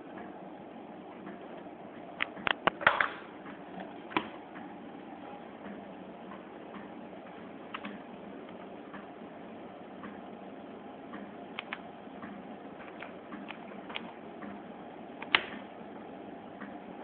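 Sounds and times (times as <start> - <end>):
steady low hum: 0.0 - 17.0
knob turning clicks: 11.6 - 11.8.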